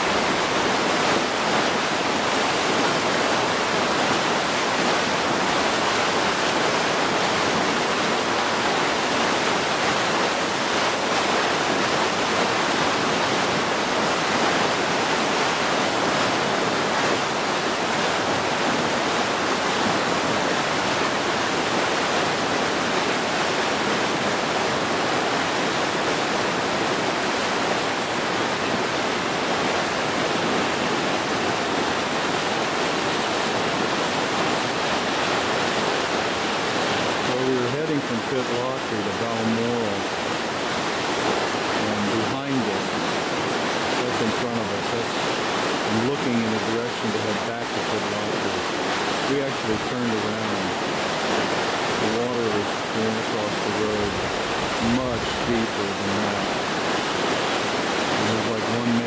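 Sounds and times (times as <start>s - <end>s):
stream rushing: 0.0s - 59.0s.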